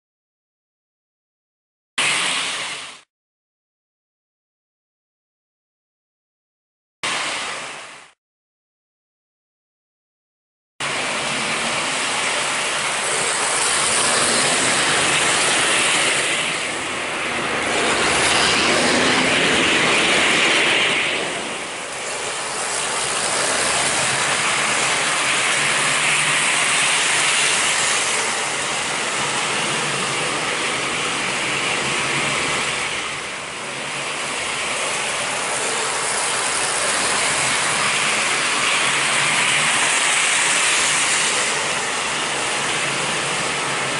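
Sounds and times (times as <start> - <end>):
model train rattling on track: 10.8 - 43.9.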